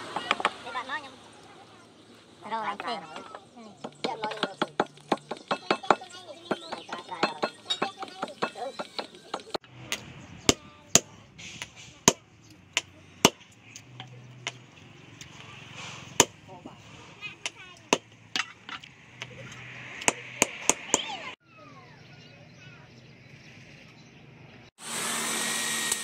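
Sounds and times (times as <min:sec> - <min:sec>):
hammer knocking wooden handle: 0:03.8 - 0:09.6.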